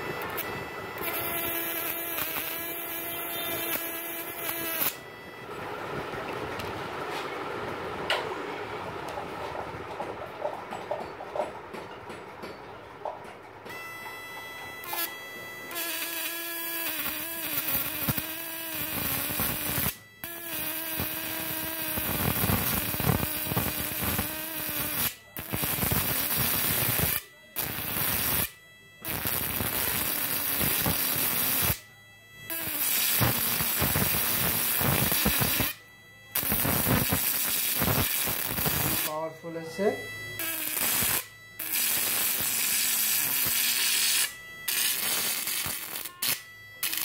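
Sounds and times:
electric arc buzzing crackle: 0:00.0 - 0:05.0, 0:14.6 - 0:31.8, 0:32.5 - 0:47.0
humming tone: 0:00.0 - 0:06.8, 0:13.0 - 0:47.0.

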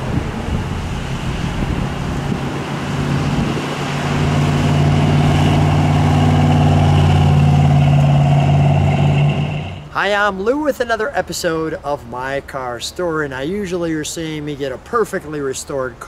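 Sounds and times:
car engine driving past: 0:00.0 - 0:09.9.

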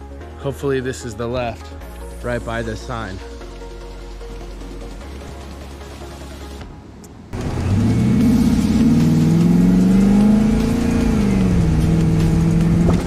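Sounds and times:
car engine accelerating: 0:07.3 - 0:13.0.

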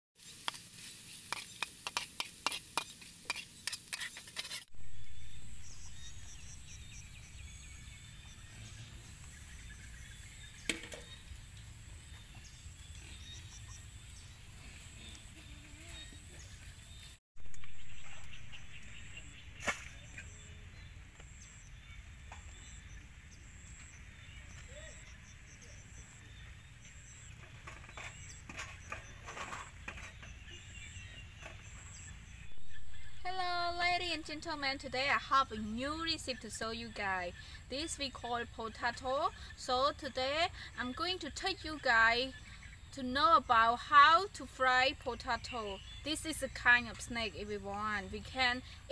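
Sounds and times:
metal spatula scraping pan: 0:01.3 - 0:04.7
bird chirps: 0:04.8 - 0:33.2.

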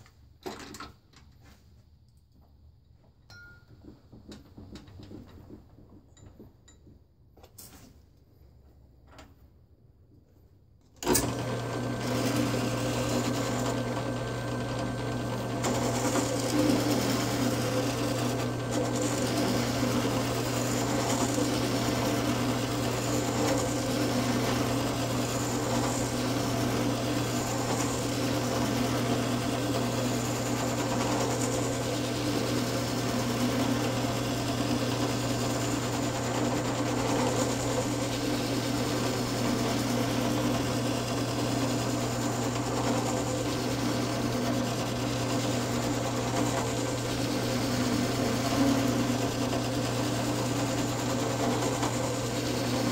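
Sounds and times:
drill press motor hum: 0:11.0 - 0:52.9
sanding drum sanding wood: 0:11.8 - 0:52.9.

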